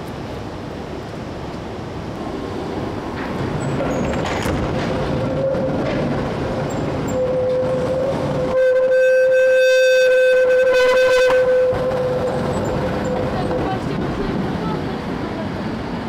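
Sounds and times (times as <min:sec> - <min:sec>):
tram rumbling on rails: 0:00.0 - 0:16.0
tram wheels squealing: 0:03.4 - 0:14.0.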